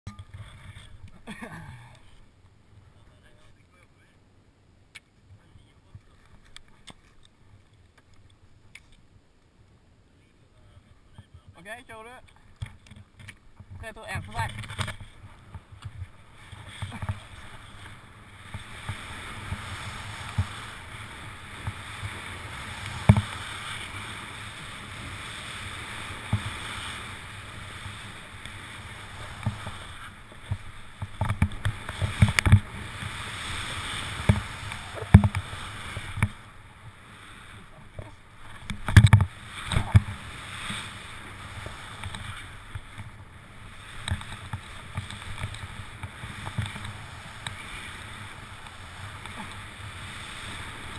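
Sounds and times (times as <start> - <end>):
skis hissing through snow: 15.1 - 50.9
dull thumps and knocks: 34.2 - 35.5.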